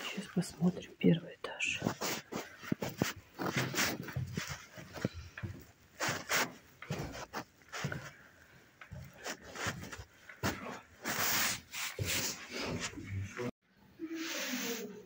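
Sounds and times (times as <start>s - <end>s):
shoe scuffs: 1.8s - 8.2s, 9.0s - 13.1s
loud shoe scrape: 1.9s - 5.1s, 11.0s - 13.0s
footsteps on concrete stairs: 2.0s - 13.5s.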